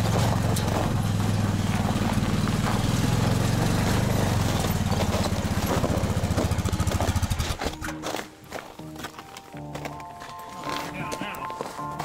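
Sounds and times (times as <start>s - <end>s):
atv engine drone: 0.0s - 7.9s.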